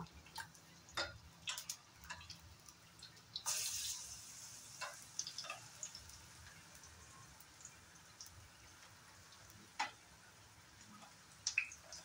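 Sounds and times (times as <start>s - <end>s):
crackling and popping: 0.0s - 3.5s, 4.8s - 10.1s, 10.8s - 12.0s
food frying in oil: 0.0s - 12.0s
spatula clicking against pan: 0.3s - 3.2s, 4.8s - 6.0s, 9.8s - 10.0s.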